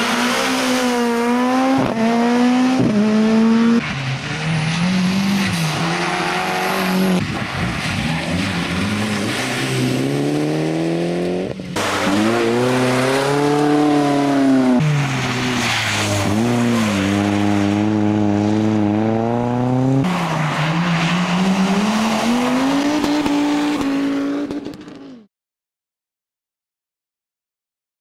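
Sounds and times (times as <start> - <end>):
tyres hissing on wet road: 14.8 - 17.8.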